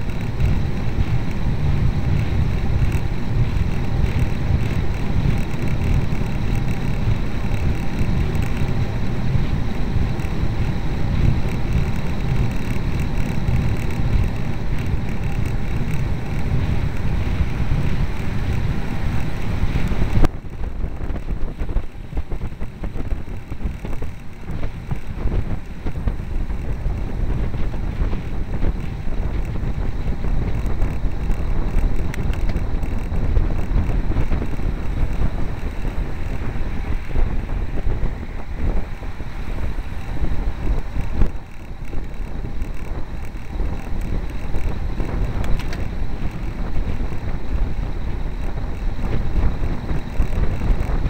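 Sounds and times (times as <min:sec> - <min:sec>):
road rumble: 0:00.0 - 0:51.0
wind buffeting microphone: 0:00.0 - 0:51.0
click: 0:40.7 - 0:46.4.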